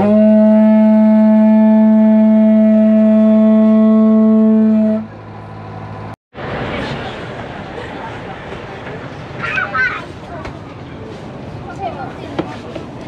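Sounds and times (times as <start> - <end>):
long wooden horn blown: 0.0 - 5.2.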